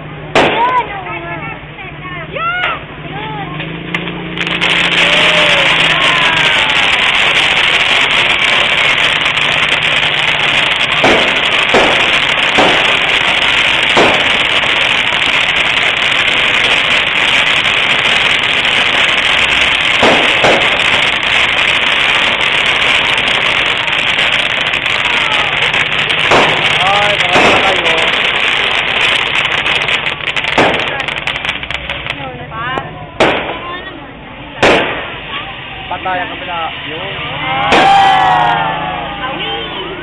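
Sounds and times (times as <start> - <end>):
firework pops: 0.3 - 1.0, 3.6 - 33.8, 34.6 - 35.5, 37.7 - 38.2
firework hissing: 3.9 - 40.0.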